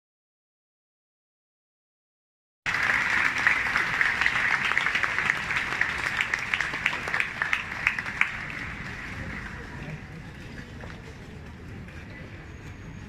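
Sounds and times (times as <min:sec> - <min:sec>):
audience applauding: 0:02.7 - 0:10.1.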